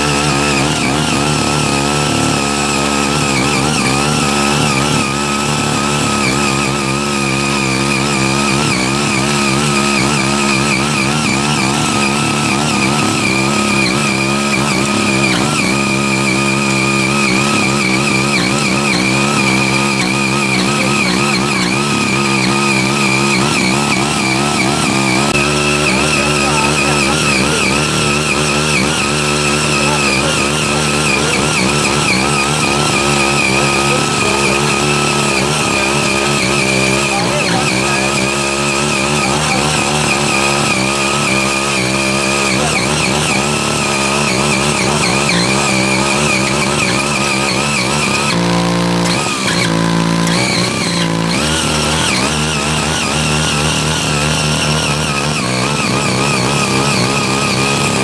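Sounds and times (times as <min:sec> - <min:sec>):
rotary tiller engine running: 0:00.0 - 0:58.0
tines churning soil: 0:00.0 - 0:58.0.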